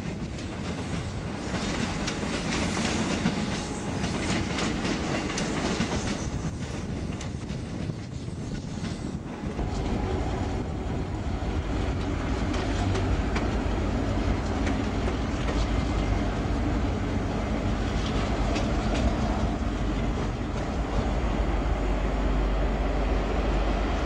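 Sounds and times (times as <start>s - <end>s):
train rumbling: 0.0s - 24.0s
wheels clicking over rail joints: 11.6s - 21.1s.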